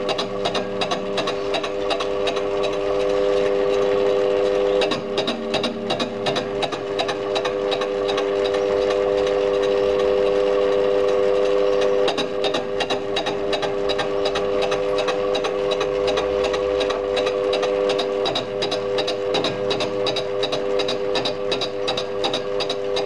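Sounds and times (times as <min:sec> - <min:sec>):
metal lathe whining: 0:00.0 - 0:23.0
fly cutter ticking on metal: 0:04.8 - 0:08.6.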